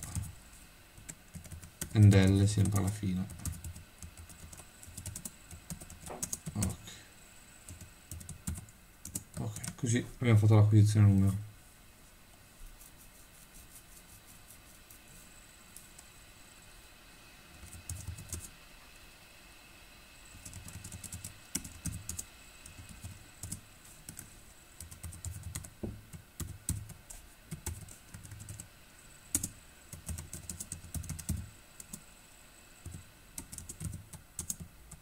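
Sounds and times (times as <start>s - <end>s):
typing on computer keyboard: 1.0s - 6.7s, 7.7s - 9.8s, 17.6s - 18.5s, 20.4s - 25.7s, 26.4s - 28.7s, 29.3s - 32.0s, 32.8s - 35.0s.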